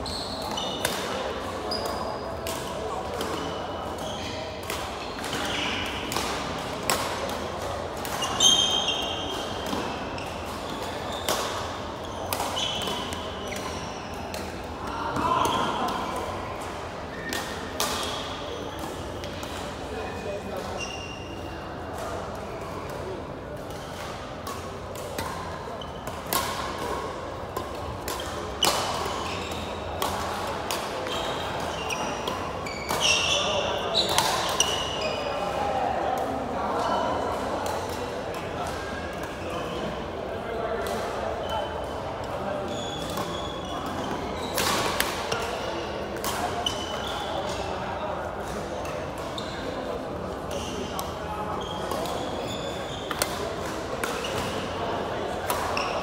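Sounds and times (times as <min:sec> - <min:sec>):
sneaker squealing on court floor: 0:00.0 - 0:00.9, 0:03.4 - 0:04.4, 0:08.2 - 0:09.6, 0:10.7 - 0:14.1, 0:20.7 - 0:21.4, 0:28.6 - 0:29.8, 0:31.1 - 0:35.3, 0:42.7 - 0:44.7, 0:50.5 - 0:51.0, 0:51.6 - 0:53.2
rackets hitting shuttlecock: 0:04.6 - 0:16.3, 0:23.7 - 0:35.0, 0:43.0 - 0:47.6, 0:53.1 - 0:56.0
rackets smacking shuttlecock: 0:53.1 - 0:54.6.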